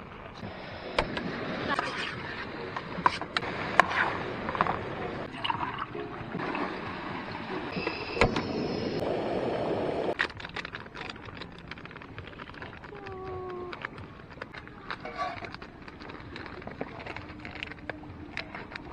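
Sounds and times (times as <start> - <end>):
light rustling and ticks: 10.2 - 18.9.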